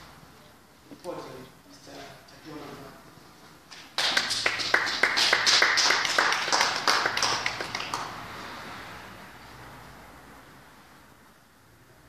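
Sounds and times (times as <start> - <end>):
audience clapping: 3.7 - 8.4.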